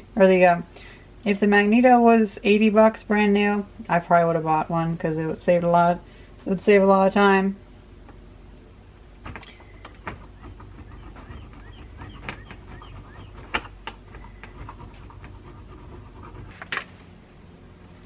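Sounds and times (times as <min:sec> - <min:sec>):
faint rapid squeaks: 0:09.4 - 0:14.7.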